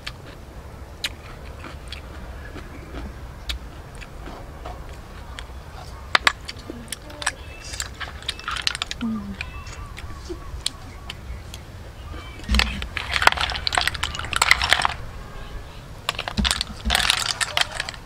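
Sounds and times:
low steady rumble: 0:00.0 - 0:18.0
snail shells clicking: 0:04.8 - 0:11.6, 0:12.2 - 0:15.1, 0:16.0 - 0:18.0
metal spoon on steel tray: 0:16.1 - 0:18.0.

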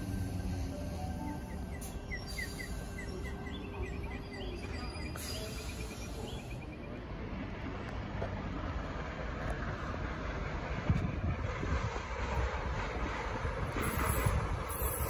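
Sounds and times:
small birds chirping: 0:01.0 - 0:07.0.

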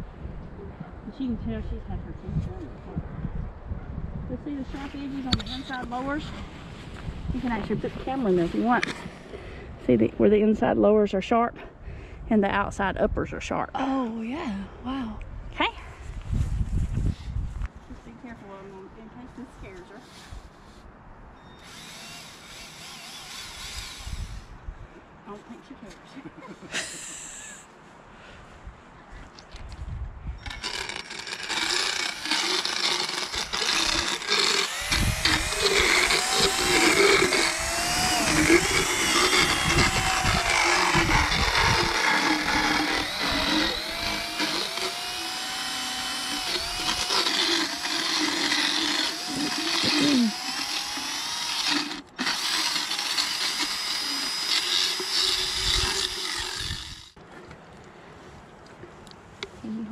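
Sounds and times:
power dental float grinding teeth: 0:21.6 - 0:24.5, 0:30.4 - 0:57.2.

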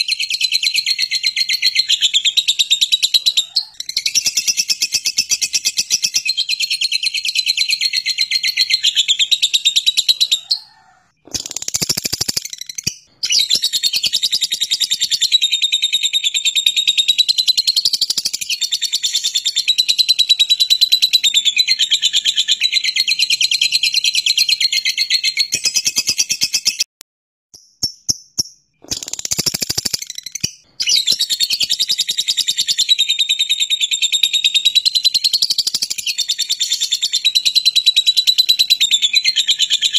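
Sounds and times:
bird chirps: 0:00.0 - 0:26.9, 0:27.6 - 0:39.9
bird chattering trill: 0:07.7 - 0:15.5, 0:27.8 - 0:32.8.

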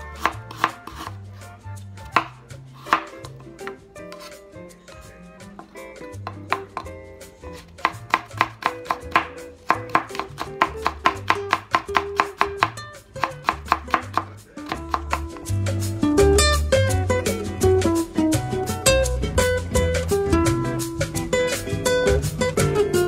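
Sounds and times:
knife chopping on wooden board: 0:00.0 - 0:04.4, 0:05.6 - 0:15.5
soft background music: 0:00.0 - 0:23.0.

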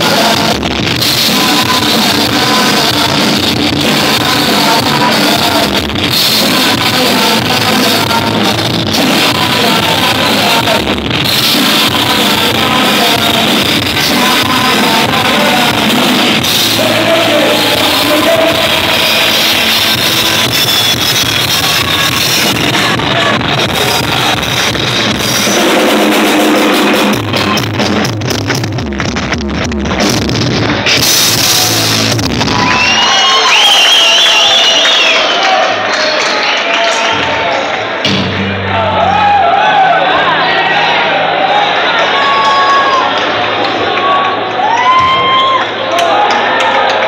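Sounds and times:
person singing: 0:00.0 - 0:24.7
live rock band playing: 0:00.0 - 0:33.4, 0:38.0 - 0:39.5.

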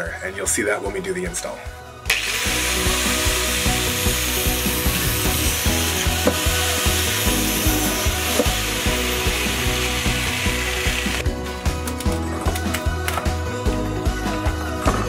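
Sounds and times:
background music with steady beat: 0:00.0 - 0:15.0
wood rasping: 0:02.8 - 0:11.2.

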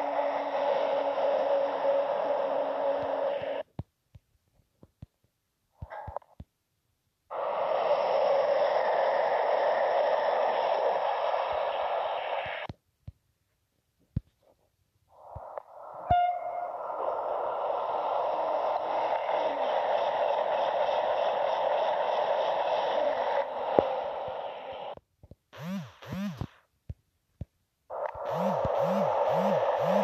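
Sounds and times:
high-speed train rushing past: 0:00.0 - 0:03.6, 0:07.3 - 0:12.7, 0:15.7 - 0:25.0.

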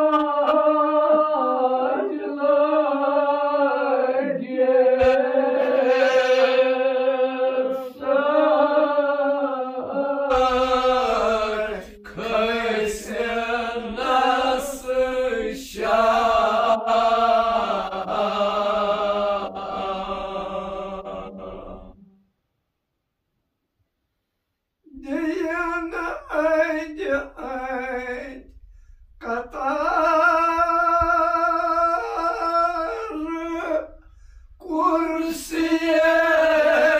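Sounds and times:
men chanting together: 0:00.0 - 0:22.0, 0:25.0 - 0:28.5, 0:29.2 - 0:34.0, 0:34.6 - 0:36.9.

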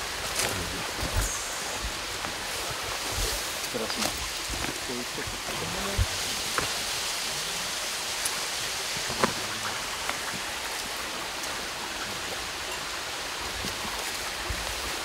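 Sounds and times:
waterfall rushing: 0:00.0 - 0:15.0
footsteps on path: 0:00.2 - 0:06.8.

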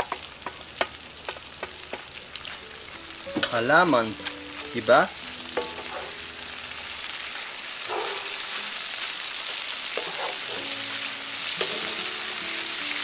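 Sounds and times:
food sizzling in a skillet: 0:00.0 - 0:13.0
wooden spatula strokes: 0:09.9 - 0:10.6.

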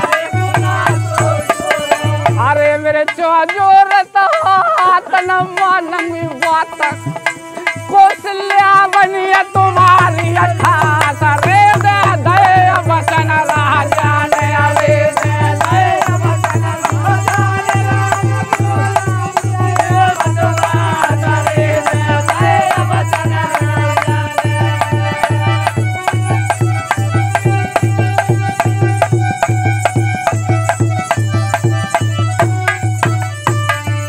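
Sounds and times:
group of men singing: 0:00.0 - 0:32.4
clicking hand percussion: 0:00.0 - 0:34.0
drum beating steady rhythm: 0:00.0 - 0:34.0.

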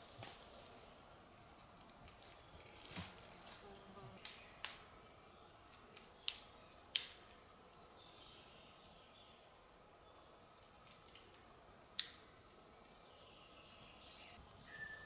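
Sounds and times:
faint high bird chirps: 0:12.8 - 0:15.0.

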